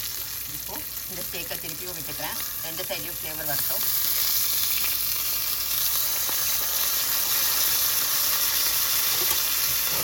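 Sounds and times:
steak sizzling in oil: 0.0 - 10.0.

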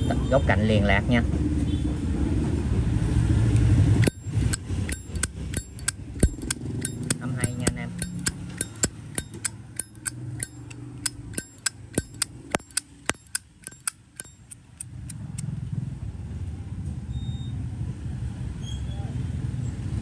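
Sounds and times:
lighter lid clicking open and shut: 4.0 - 14.6.

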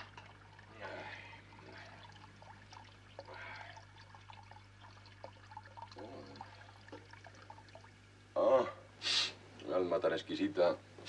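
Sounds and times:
soft breathy sounds: 0.7 - 2.3, 3.2 - 4.0
faint hiss: 8.4 - 10.8.

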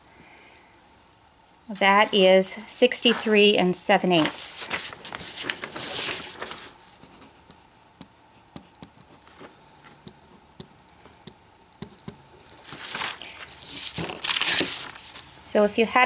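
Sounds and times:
pen scratching on paper: 2.9 - 3.5, 6.9 - 12.2
faint taps and clicks: 7.4 - 9.1.

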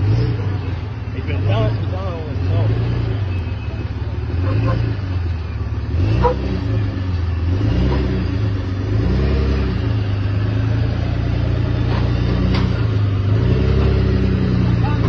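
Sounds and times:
truck engine revving: 0.0 - 15.0.

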